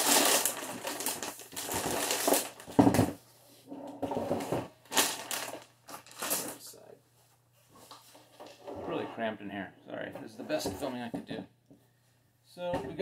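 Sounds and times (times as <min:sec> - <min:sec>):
plastic bag crinkling: 0:00.0 - 0:02.9, 0:04.8 - 0:06.8.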